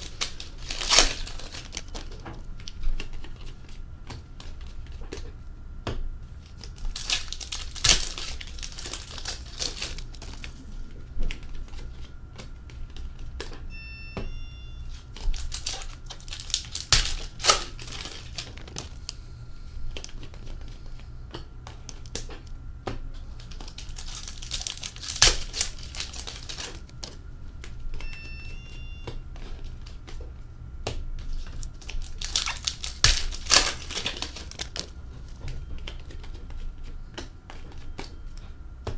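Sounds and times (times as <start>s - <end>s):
foil wrappers tearing and crinkling: 0.0s - 3.5s, 6.4s - 10.6s, 14.9s - 19.1s, 23.4s - 27.2s, 31.3s - 34.9s.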